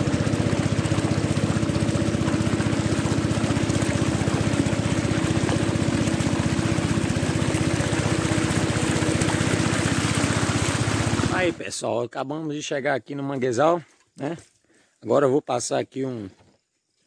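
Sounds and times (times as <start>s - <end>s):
small boat motor puttering: 0.0s - 11.6s.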